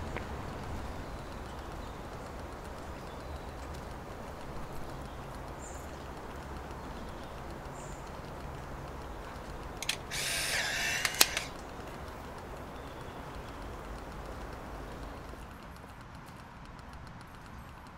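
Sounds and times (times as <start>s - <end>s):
sharp clicks: 0.0s - 17.9s
camera motor whirring: 8.4s - 15.4s
camera shutter click: 9.8s - 11.6s.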